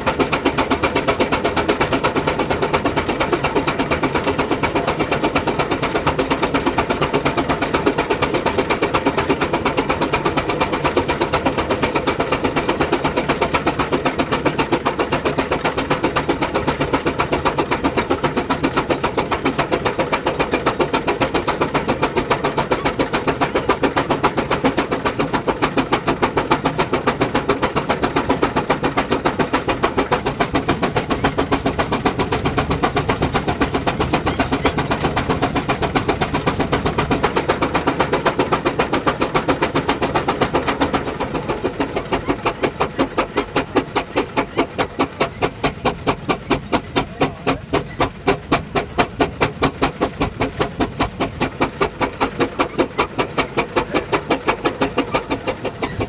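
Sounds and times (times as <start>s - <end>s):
steam engine exhaust chuffing: 0.0s - 56.0s.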